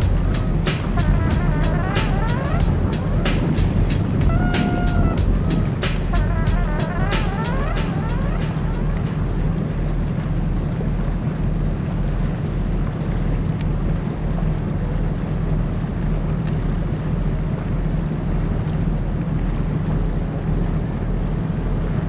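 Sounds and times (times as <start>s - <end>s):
boat motor humming: 0.0s - 12.3s
wind buffeting microphone: 2.4s - 6.1s.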